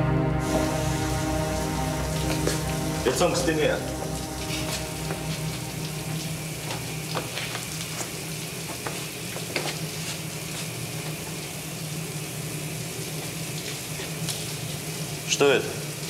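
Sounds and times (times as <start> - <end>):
low hum: 0.0 - 8.7
steady hiss: 0.4 - 16.0.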